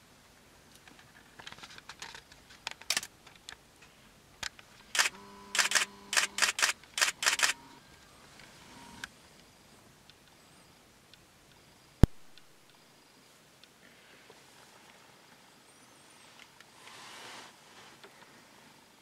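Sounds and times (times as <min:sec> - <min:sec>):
camera shutter clicks: 0:04.9 - 0:07.7.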